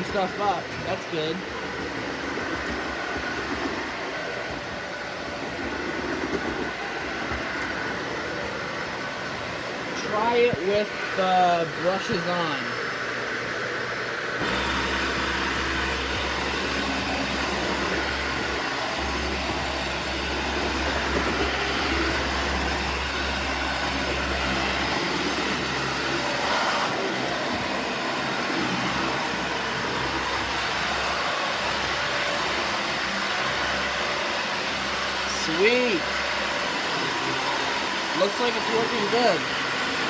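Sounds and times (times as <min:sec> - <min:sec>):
brush bar spinning hum: 0:00.0 - 0:40.0
vacuum cleaner running: 0:00.0 - 0:40.0.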